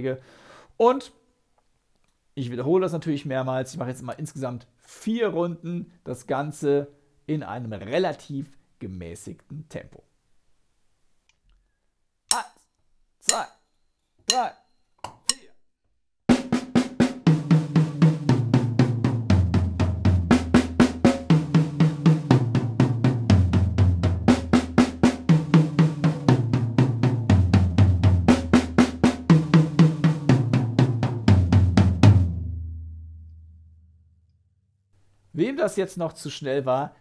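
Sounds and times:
drum strokes around kit: 0:16.3 - 0:32.3.

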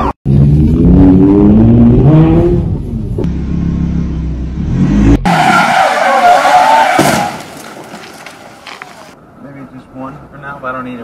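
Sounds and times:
wavering tyre squeal: 0:05.2 - 0:09.1.

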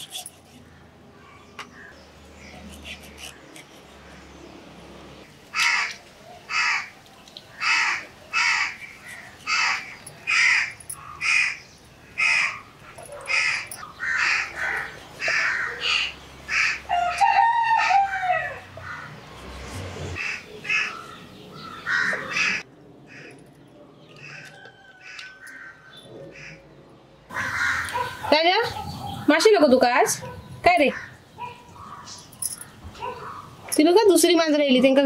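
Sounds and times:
crows cawing: 0:05.5 - 0:06.9, 0:07.5 - 0:12.6, 0:13.3 - 0:19.2, 0:20.2 - 0:23.4, 0:24.2 - 0:26.6, 0:27.3 - 0:28.2
rooster crowing: 0:16.8 - 0:19.1, 0:24.2 - 0:25.8.

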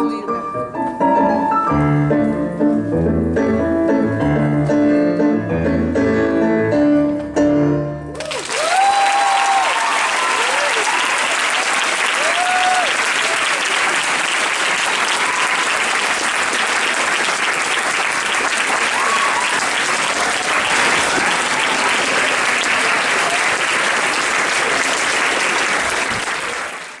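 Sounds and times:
audience applauding: 0:08.2 - 0:27.0.

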